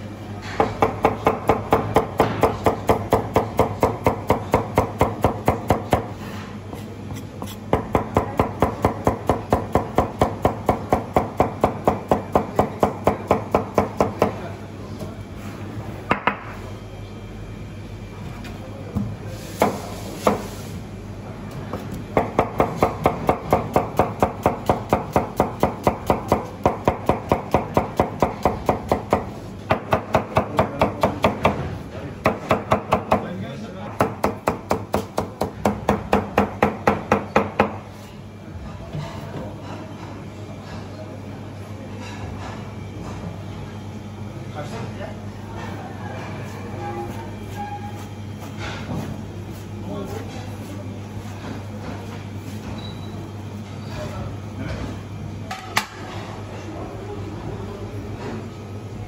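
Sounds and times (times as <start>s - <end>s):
knife chopping on board: 34.0s - 37.8s.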